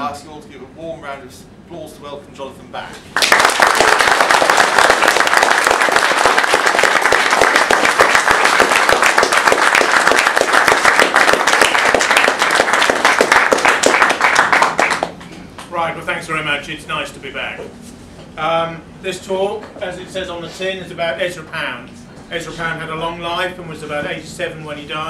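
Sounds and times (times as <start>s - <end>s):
audience applauding: 3.2s - 15.3s.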